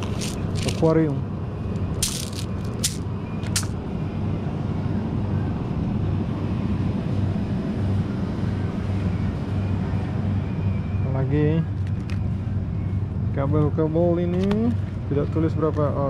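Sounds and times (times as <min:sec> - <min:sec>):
bag of stones rattling: 0:00.0 - 0:00.9, 0:02.0 - 0:03.0
low background hum: 0:00.0 - 0:16.0.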